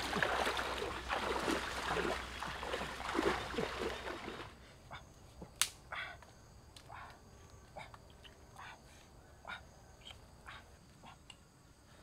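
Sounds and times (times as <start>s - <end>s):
water splashing from wading: 0.0s - 4.5s.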